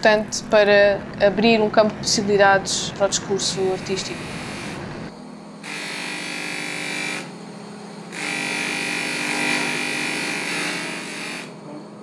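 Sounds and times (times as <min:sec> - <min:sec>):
buffing wheel whirring with whine: 0:01.8 - 0:12.0
polishing motor humming: 0:02.4 - 0:12.0.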